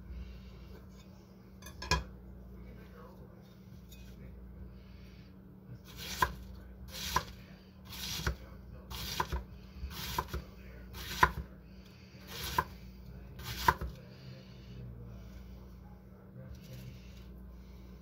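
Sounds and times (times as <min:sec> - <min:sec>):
knife slicing cabbage: 0:05.8 - 0:10.4, 0:11.0 - 0:11.4, 0:12.3 - 0:12.8, 0:13.4 - 0:14.0.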